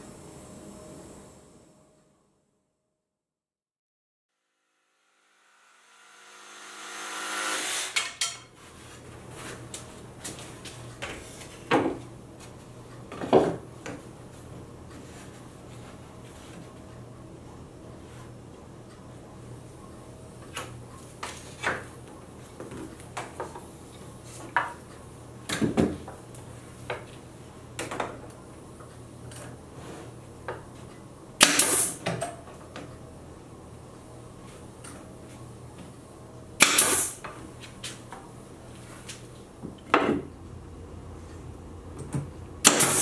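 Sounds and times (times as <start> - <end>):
pneumatic nailer shots: 6.4 - 8.2, 31.4 - 32.0, 36.6 - 37.2, 42.6 - 43.0.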